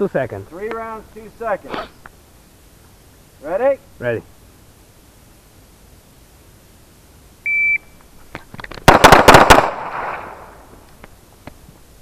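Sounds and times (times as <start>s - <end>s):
shot timer beep: 7.5s - 7.9s
pistol shots echoing: 8.9s - 10.5s.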